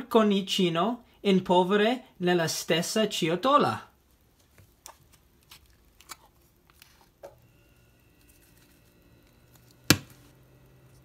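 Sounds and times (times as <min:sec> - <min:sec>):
faint low hum: 0:03.8 - 0:11.0.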